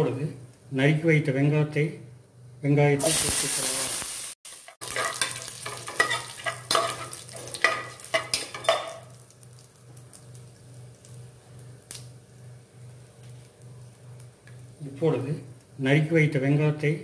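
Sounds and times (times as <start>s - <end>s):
shallots sizzling in hot oil: 3.0s - 14.8s
metal spoon scraping a pot: 4.8s - 9.0s.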